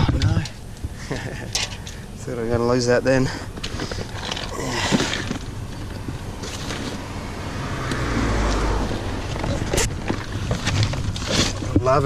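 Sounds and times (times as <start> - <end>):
car passing on road: 6.2 - 11.0.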